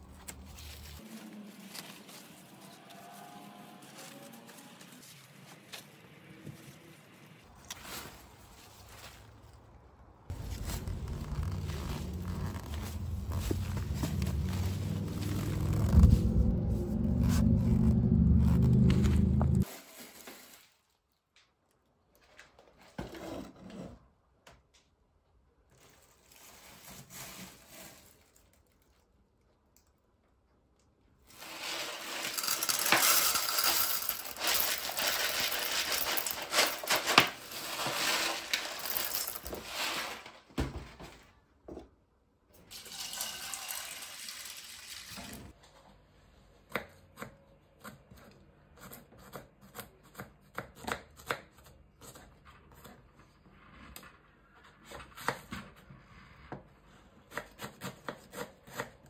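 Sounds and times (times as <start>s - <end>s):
beans rattling into metal pan: 31.3s - 40.3s, 42.7s - 45.5s.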